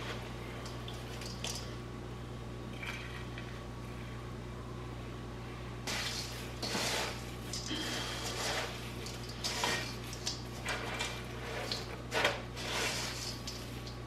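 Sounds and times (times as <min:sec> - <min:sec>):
steady low hum: 0:00.0 - 0:14.0
scrapes and knocks in a metal bowl: 0:05.9 - 0:14.0.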